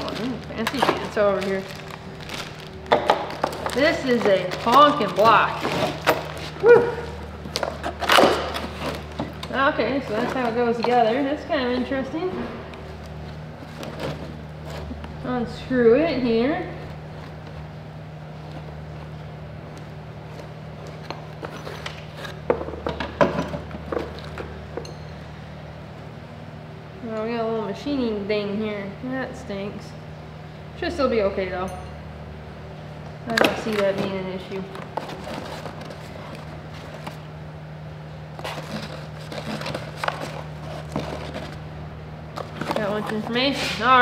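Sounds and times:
cardboard rustling: 0.0s - 11.9s, 33.4s - 37.3s, 38.3s - 44.0s
steady low hum: 0.0s - 44.0s.

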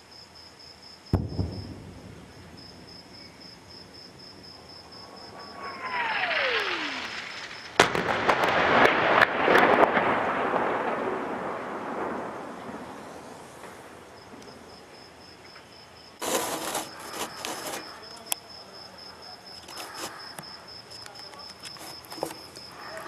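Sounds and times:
crickets chirping: 0.0s - 9.1s, 10.0s - 23.0s
shelling blast rumble: 1.1s - 15.0s
loud crackling bursts: 5.2s - 15.0s, 16.2s - 18.1s.

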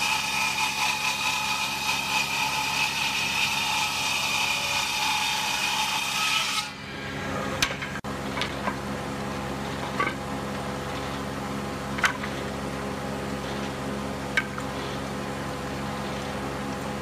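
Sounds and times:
circular saw cutting wood: 0.0s - 8.0s.

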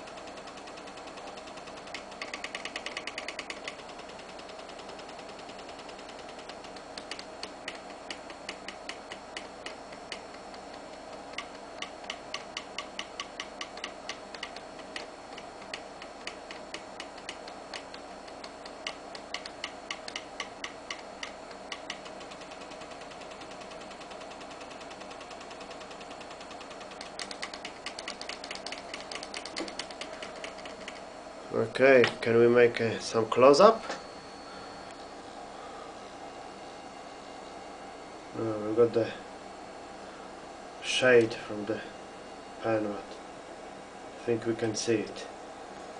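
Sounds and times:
stepper motors ticking: 0.0s - 31.0s
steady hum: 0.0s - 45.9s.

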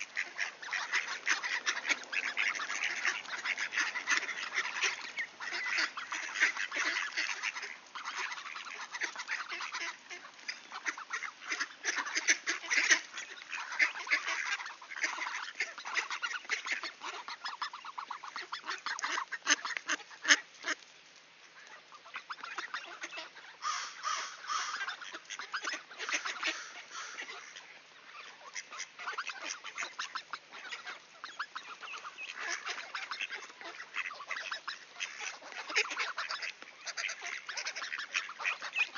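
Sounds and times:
ducks quacking: 0.0s - 20.8s, 21.5s - 38.9s.

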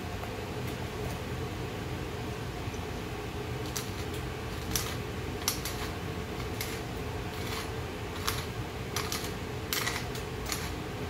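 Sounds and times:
steady background hiss: 0.0s - 11.0s
pepper mill grinding: 3.7s - 10.8s.

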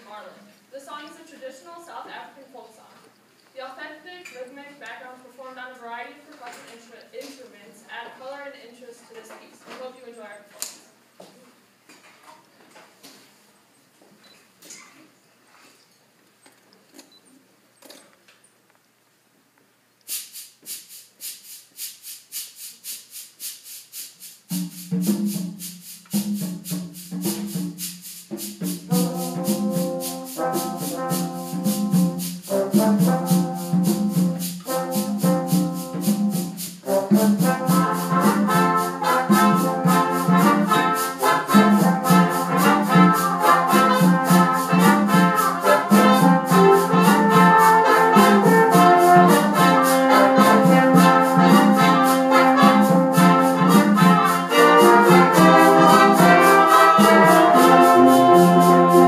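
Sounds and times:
shaker rhythm: 20.0s - 59.0s
brass ensemble playing folk song: 24.5s - 59.0s
low brass repeated figure: 28.4s - 59.0s.

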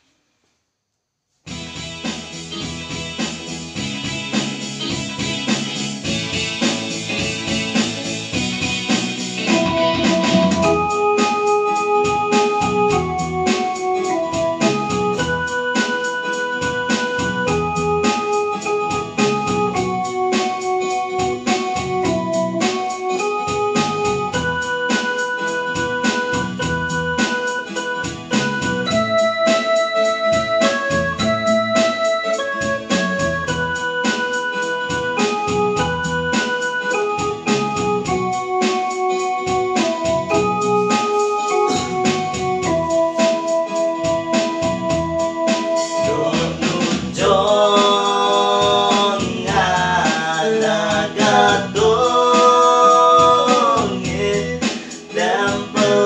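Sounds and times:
steady keyboard beat: 1.5s - 56.0s
hymn on electronic keyboard: 6.0s - 56.0s.

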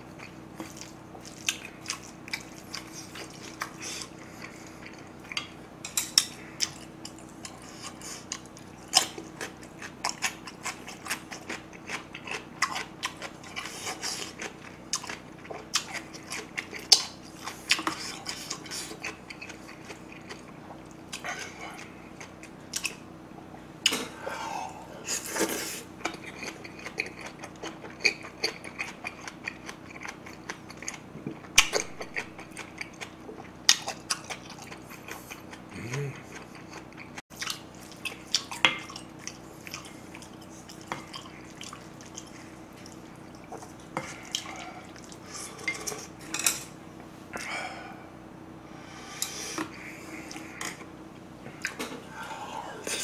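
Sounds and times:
faint steady hum: 0.0s - 53.0s
utensils clinking against bowl: 45.6s - 46.8s.

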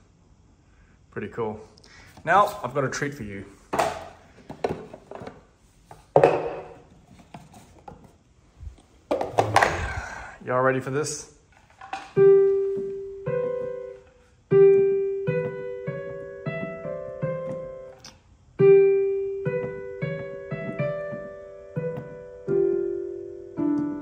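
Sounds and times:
digital piano melody: 12.2s - 24.0s.

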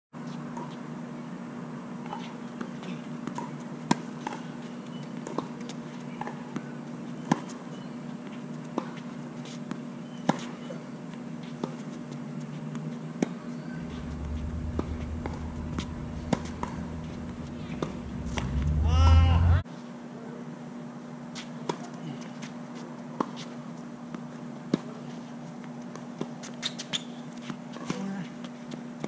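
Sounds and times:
steady low hum: 13.5s - 19.6s
low rumble: 13.6s - 19.6s.

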